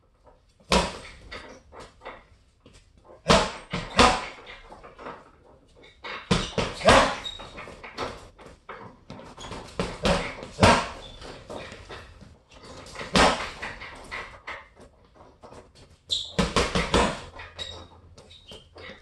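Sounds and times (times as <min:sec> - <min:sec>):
gloves punching heavy bag: 0:00.7 - 0:01.3, 0:03.2 - 0:04.5, 0:06.3 - 0:08.3, 0:09.1 - 0:14.4, 0:16.2 - 0:17.6.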